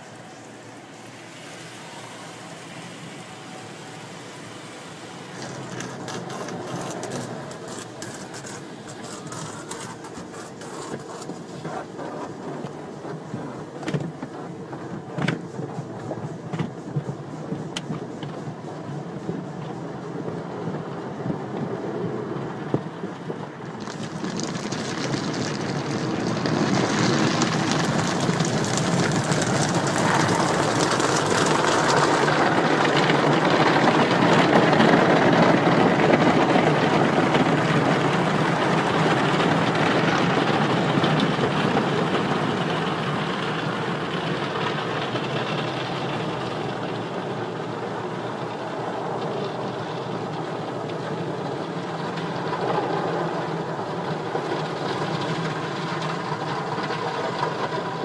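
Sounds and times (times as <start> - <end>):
car wash spray and machinery: 0.0 - 58.0.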